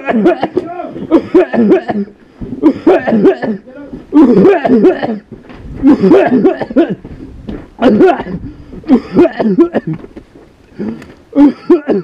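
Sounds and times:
voice: 0.0s - 2.1s, 2.9s - 5.2s
men coughing: 0.0s - 7.2s, 7.8s - 10.1s, 10.8s - 12.0s.

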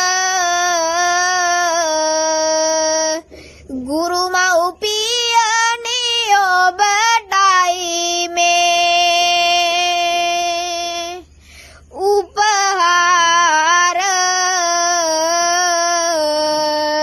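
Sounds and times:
boy singing a chant-like melody: 0.0s - 17.0s.

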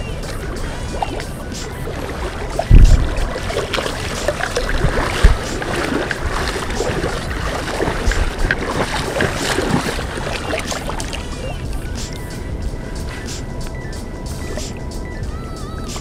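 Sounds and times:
fish splashing in water: 0.0s - 12.1s
rough water noise: 0.0s - 15.3s
wind on microphone: 0.0s - 16.0s
sharp low thump: 2.7s - 3.3s.

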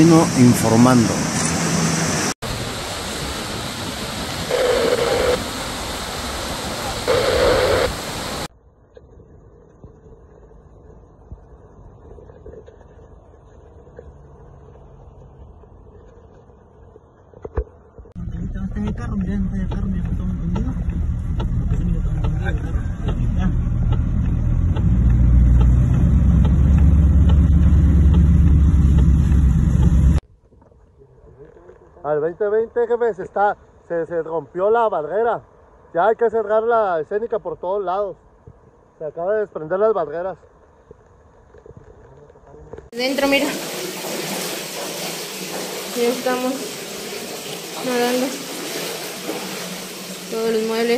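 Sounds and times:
river water rushing: 0.0s - 8.5s, 43.0s - 50.9s
car driving in heavy rain: 43.1s - 50.9s.

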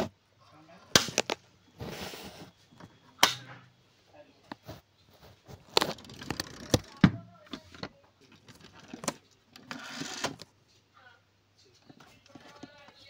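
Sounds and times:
rustling and scraping on cardboard: 1.2s - 2.7s, 4.6s - 6.8s.

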